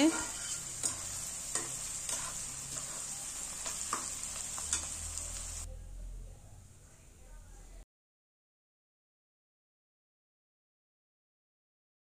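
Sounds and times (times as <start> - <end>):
metal spatula scraping pan: 0.0 - 5.7
onions sizzling in hot oil: 0.0 - 5.7.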